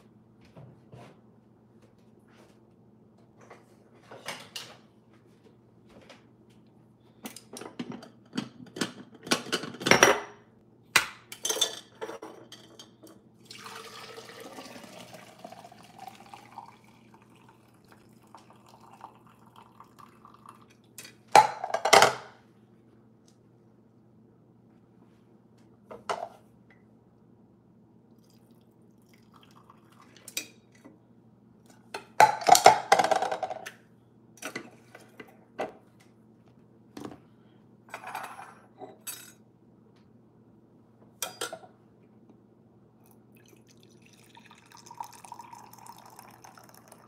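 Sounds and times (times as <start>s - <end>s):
dishes and utensils clinking: 11.3s - 13.2s, 37.9s - 39.4s, 41.2s - 41.7s
liquid pouring: 13.4s - 20.8s, 28.2s - 30.4s, 43.3s - 47.0s.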